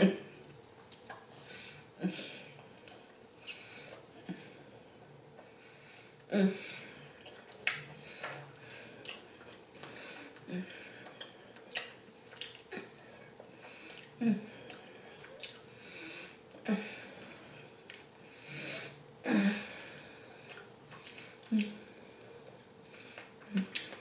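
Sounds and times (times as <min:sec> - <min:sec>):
person chewing and smacking: 0:00.4 - 0:01.3, 0:06.7 - 0:15.8, 0:17.8 - 0:18.1, 0:19.8 - 0:24.0.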